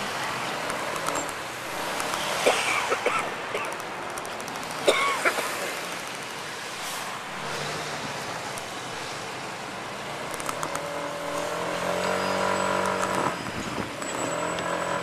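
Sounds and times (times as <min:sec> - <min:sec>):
road traffic passing: 0:00.0 - 0:15.0.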